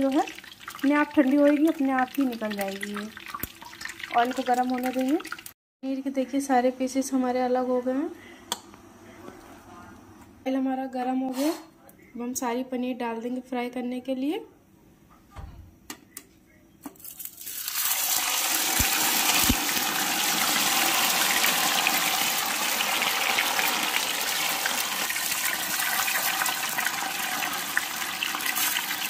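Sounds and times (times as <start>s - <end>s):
food deep-frying in oil: 0.0s - 5.6s, 17.0s - 29.0s.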